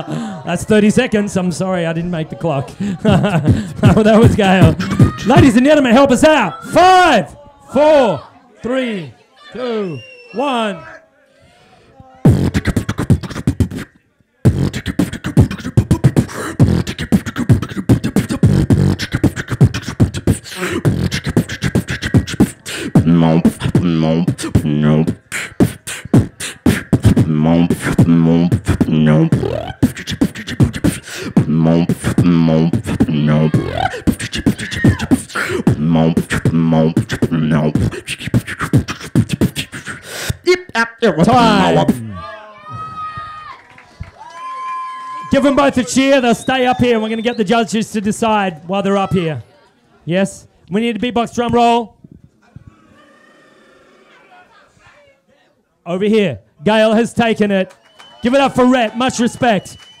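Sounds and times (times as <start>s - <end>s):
beatboxing mouth percussion: 3.0s - 5.7s, 12.2s - 42.2s, 58.2s - 60.0s
hummed bass notes: 14.5s - 34.3s, 35.0s - 37.9s.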